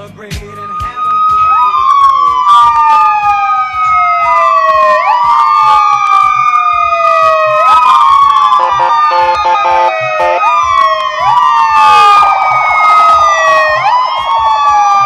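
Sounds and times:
emergency sirens wailing: 0.4 - 15.0
siren fast yelp: 0.6 - 15.0
short horn blasts: 8.6 - 10.5.

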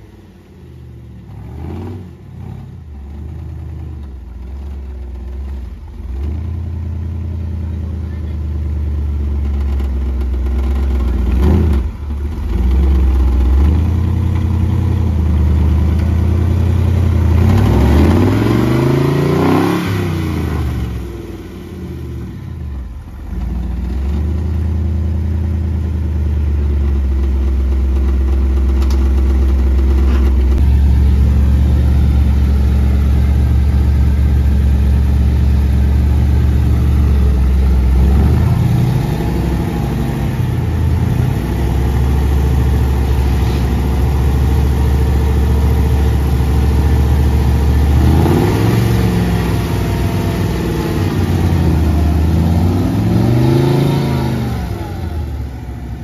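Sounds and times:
truck engine revving in mud: 1.2 - 3.3, 9.7 - 22.5, 29.2 - 56.0.

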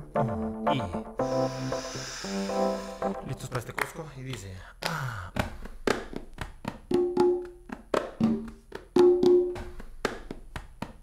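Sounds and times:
conga drums played by hand: 5.4 - 11.0.

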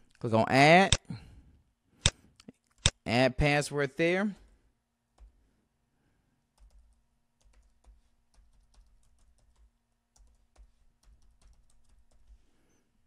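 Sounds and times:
typing on computer keyboard: 6.6 - 12.4.

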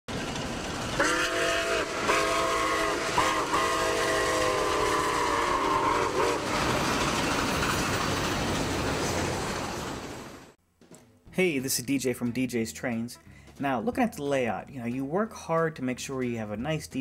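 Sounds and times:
running train noise: 0.1 - 10.6
steam locomotive whistle: 1.0 - 6.8.

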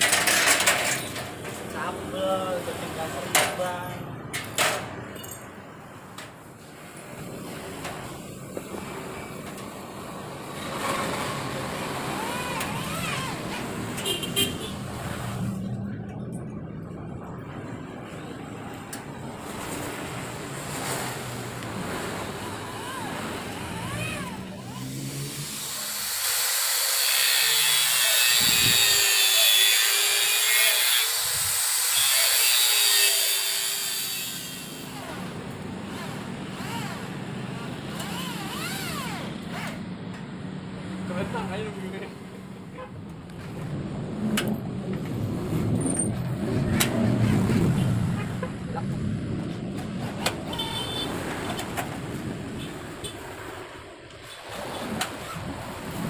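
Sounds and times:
power cutter cutting wood: 10.5 - 13.8, 22.4 - 39.9
electric drill whining: 25.3 - 35.2, 37.9 - 39.4.

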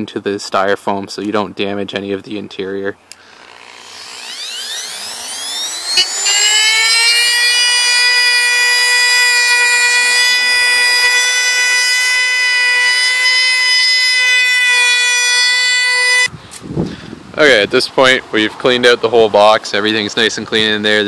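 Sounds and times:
rotary tool whine: 3.1 - 16.3.

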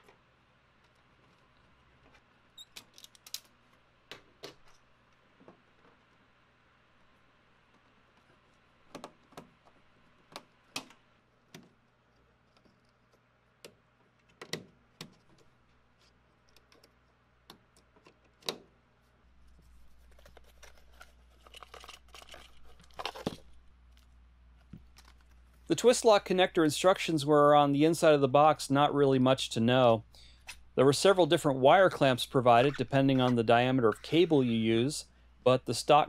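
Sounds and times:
paper and plastic bag rustling: 19.6 - 23.6.

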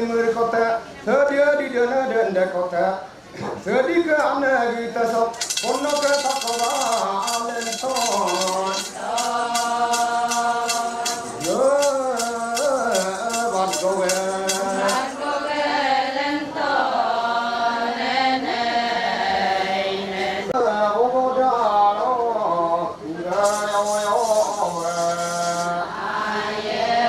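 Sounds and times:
rhythmic metallic jingling: 5.3 - 15.5, 23.3 - 25.7
voices chanting a melody: 5.5 - 20.6, 23.3 - 27.0.

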